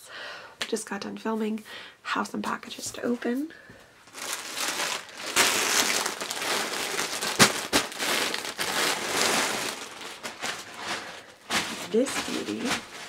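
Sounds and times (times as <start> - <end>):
sharp tear of wrapping: 4.1 - 11.8
package wrapping crinkling: 4.1 - 13.0.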